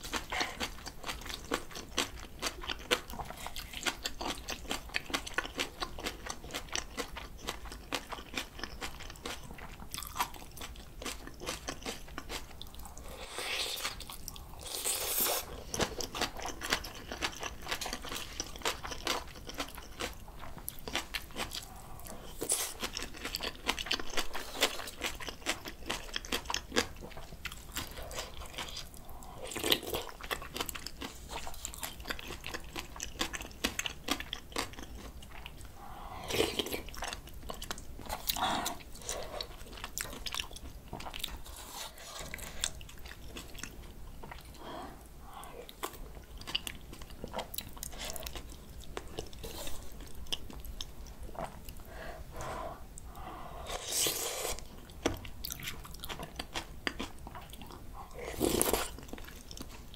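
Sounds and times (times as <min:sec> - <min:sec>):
chewing and crunching: 0:00.0 - 0:52.4, 0:53.0 - 0:59.9.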